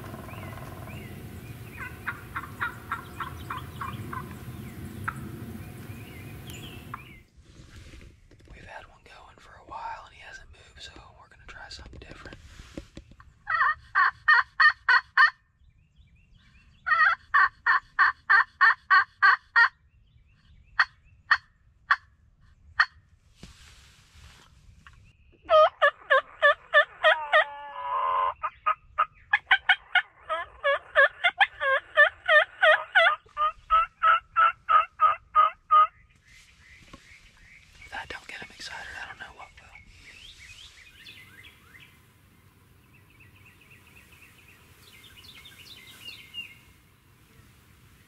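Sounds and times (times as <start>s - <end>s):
turkey gobbling: 0.0s - 1.0s, 1.7s - 4.4s, 13.5s - 15.4s, 16.9s - 19.8s, 25.4s - 36.0s
turkeys yelping: 1.7s - 4.4s, 13.4s - 15.4s, 16.9s - 19.8s, 25.4s - 36.0s.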